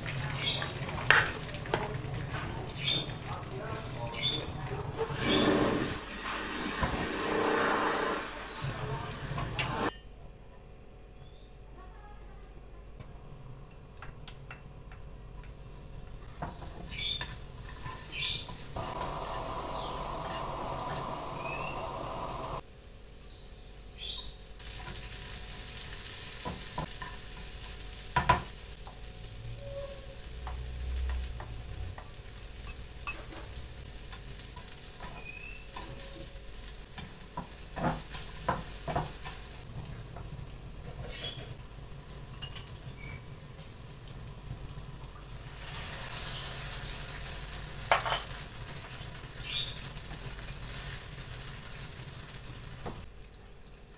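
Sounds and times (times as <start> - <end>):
hot oil sizzling in a frying pan: 0.0 - 7.9, 15.4 - 53.1
spatula scraping a pan: 5.0 - 9.9.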